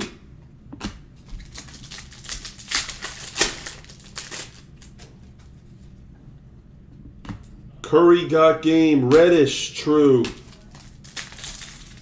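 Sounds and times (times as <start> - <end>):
plastic wrapper crinkling: 1.3 - 5.0, 10.4 - 12.0.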